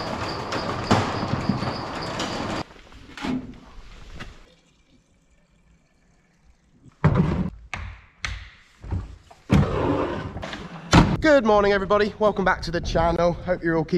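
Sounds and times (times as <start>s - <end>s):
roller shutter door rattling: 0.0s - 2.7s.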